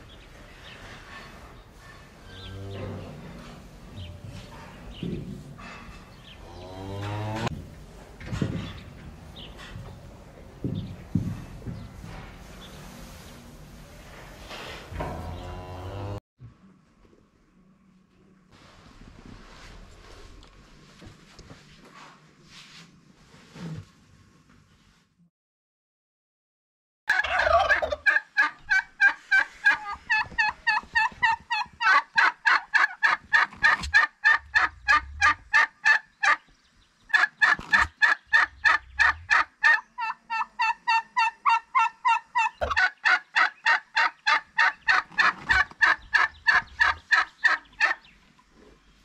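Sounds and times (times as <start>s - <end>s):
turkeys calling: 27.1s - 36.5s, 37.1s - 48.4s.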